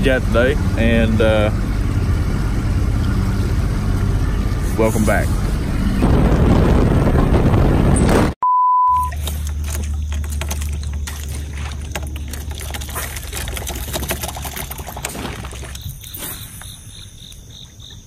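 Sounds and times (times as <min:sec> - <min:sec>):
boat engine running: 0:00.0 - 0:08.3, 0:09.0 - 0:16.2
wind noise: 0:03.8 - 0:08.4
electronic beep: 0:08.4 - 0:09.2
fishing gear clicks and knocks: 0:09.1 - 0:16.1
water lapping: 0:09.2 - 0:18.0.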